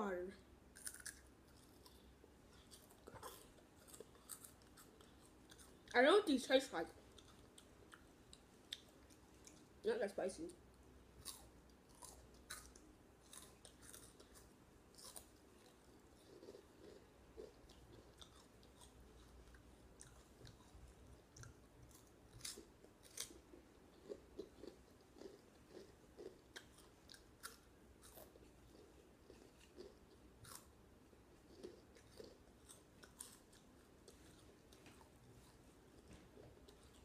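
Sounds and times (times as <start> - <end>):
crunching snacks: 0.7 - 5.9, 11.2 - 30.8.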